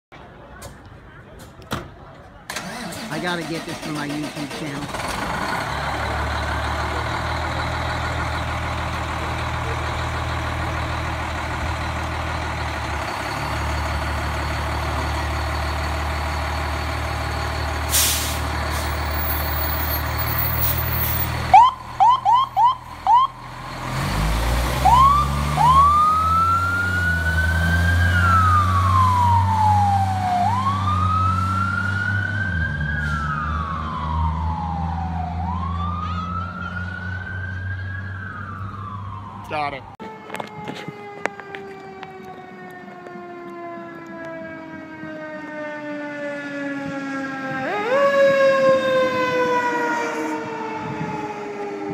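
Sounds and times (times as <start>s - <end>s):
diesel engine running: 2.5s - 32.1s
siren chirps: 18.5s - 23.8s, 24.8s - 51.9s
siren wailing: 18.9s - 23.5s, 24.8s - 51.9s.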